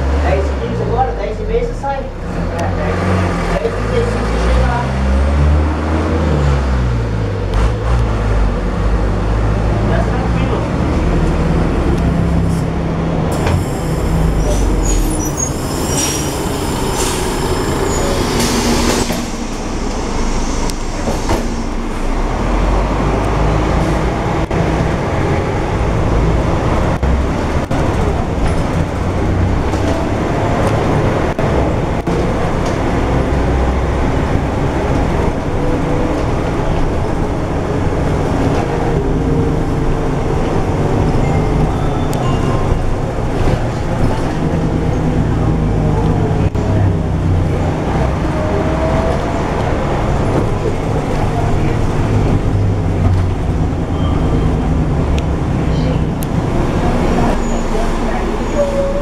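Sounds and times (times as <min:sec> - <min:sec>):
bus diesel engine rumbling: 0:00.0 - 0:59.0
road and body noise: 0:00.0 - 0:59.0
air brake hiss: 0:13.4 - 0:21.9.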